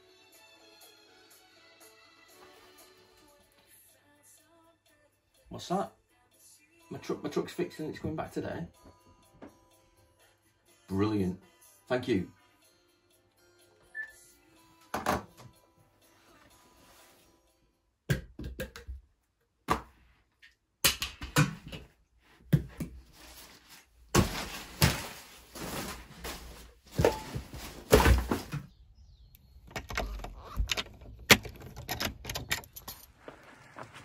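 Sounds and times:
keys jingling at door lock: 0:29.8 - 0:32.9.

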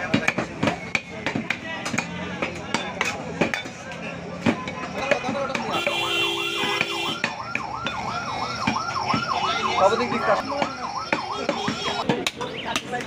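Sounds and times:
yelping siren: 0:05.8 - 0:12.0.

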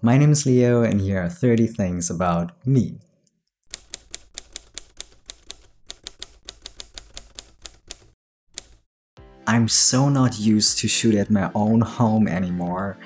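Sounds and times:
typewriter keystroke clacks: 0:03.7 - 0:08.8.

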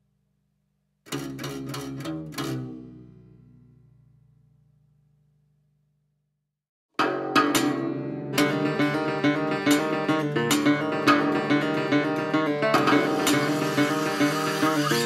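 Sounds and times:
acoustic guitar strumming and plucking: 0:01.1 - 0:03.0, 0:07.0 - 0:15.0.

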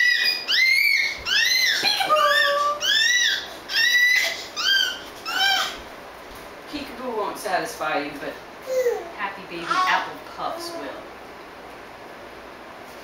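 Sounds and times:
babies squealing: 0:00.0 - 0:05.8, 0:08.7 - 0:10.1.

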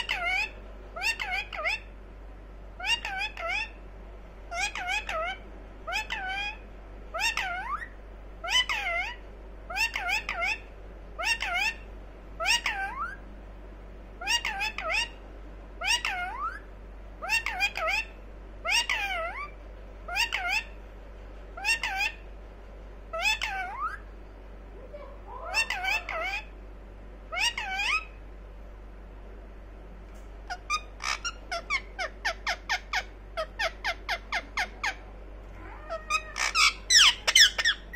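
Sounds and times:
parakeet calling: 0:00.0 - 0:02.0, 0:02.8 - 0:03.9, 0:04.5 - 0:13.2, 0:14.2 - 0:15.2, 0:15.8 - 0:20.9, 0:21.6 - 0:22.3, 0:23.1 - 0:24.1, 0:24.9 - 0:26.6, 0:27.2 - 0:28.2, 0:30.4 - 0:37.9.

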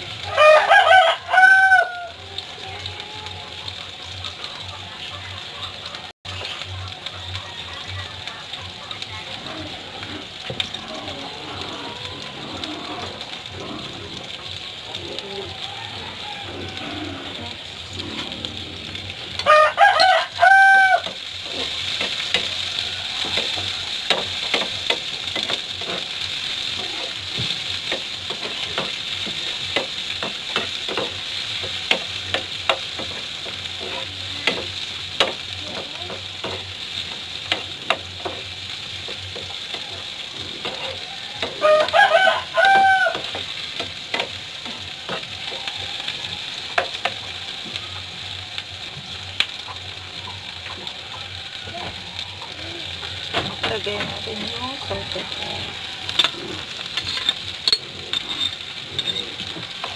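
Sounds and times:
vegetables sizzling in a pan: 0:00.0 - 0:59.9
rooster crowing: 0:00.2 - 0:02.3, 0:15.1 - 0:17.7, 0:19.4 - 0:21.6, 0:22.2 - 0:24.3, 0:40.6 - 0:43.5, 0:44.7 - 0:48.2
metal spoon scraping a pan: 0:56.1 - 0:59.9.

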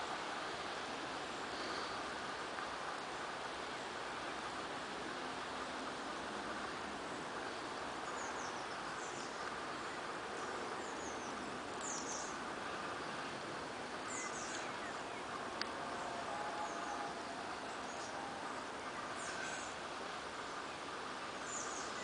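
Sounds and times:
steady background hiss: 0:00.0 - 0:22.0
small birds chirping: 0:07.5 - 0:13.4, 0:14.0 - 0:15.5, 0:20.4 - 0:22.0.

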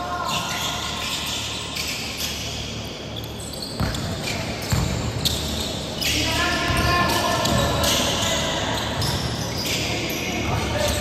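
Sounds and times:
basketball bouncing on hardwood floor: 0:03.8 - 0:05.0.

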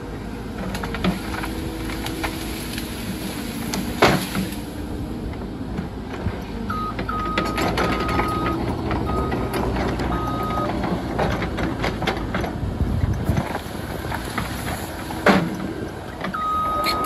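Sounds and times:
excavator diesel engine under load: 0:00.0 - 0:17.0
branches snapping and crackling: 0:00.7 - 0:04.8, 0:13.2 - 0:15.8
high-pitched beep: 0:16.4 - 0:17.0.

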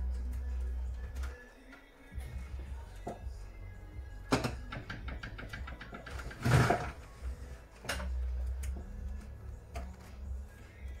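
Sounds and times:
screwdriver knocking on wooden desk: 0:04.3 - 0:06.0.

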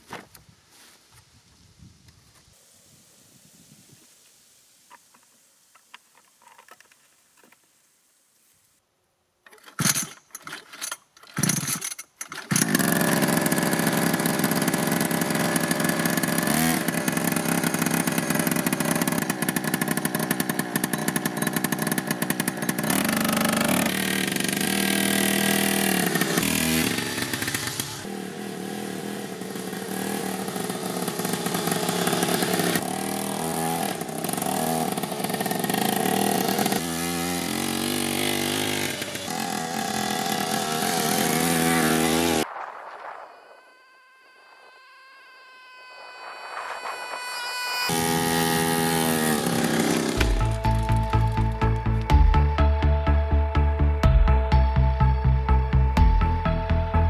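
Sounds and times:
small two-stroke engine starting: 0:09.5 - 0:42.4, 0:47.8 - 0:52.3.

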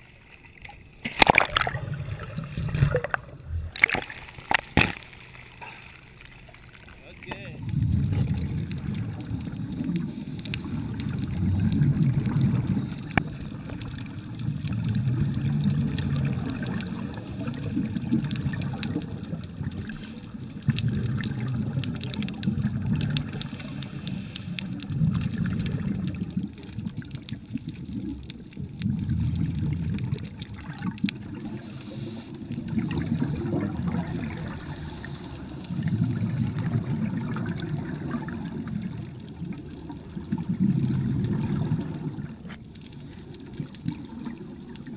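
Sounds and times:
underwater exhaled bubbles: 0:00.0 - 0:44.9
diver breathing: 0:31.4 - 0:32.6, 0:34.4 - 0:36.1.

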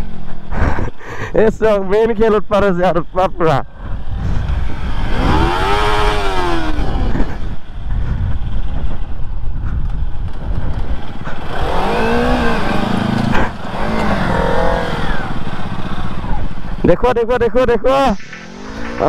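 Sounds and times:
constant low rumble: 0:00.0 - 0:19.0
motorcycle engine revving: 0:02.0 - 0:16.9, 0:17.9 - 0:19.0.

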